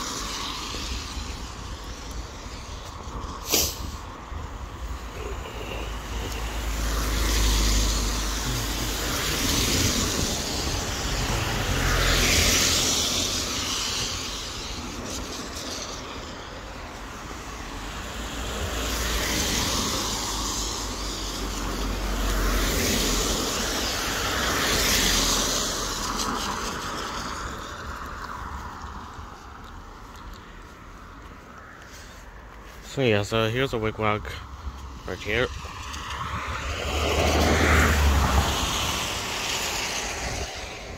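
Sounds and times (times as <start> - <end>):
tyres hissing on wet road: 0.0 - 40.9.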